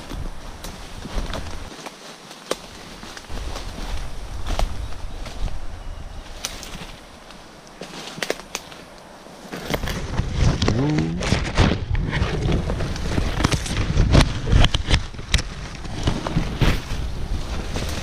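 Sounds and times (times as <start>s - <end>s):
twigs snapping: 0.0s - 5.6s, 6.3s - 11.8s
leaves and branches rustling: 0.0s - 18.0s
microphone rumble: 9.8s - 18.0s.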